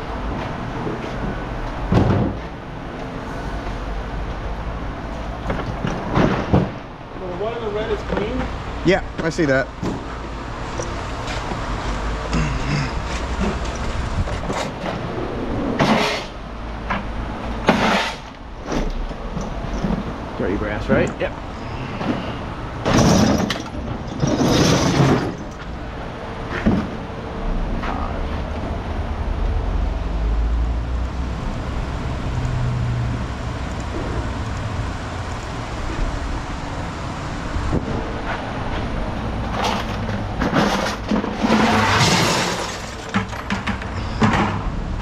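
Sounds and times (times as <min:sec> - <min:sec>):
engine rumbling: 0:00.0 - 0:45.0
scrap metal clattering: 0:22.0 - 0:25.7, 0:39.5 - 0:44.7.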